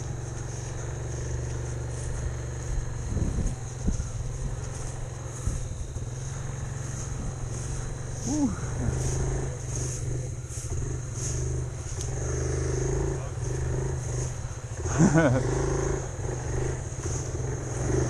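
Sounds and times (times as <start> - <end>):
vehicle engine running: 0.0 - 18.0.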